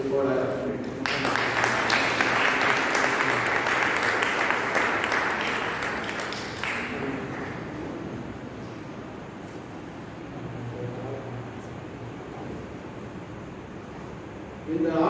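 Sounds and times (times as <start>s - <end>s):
crowd applauding: 1.0s - 8.1s.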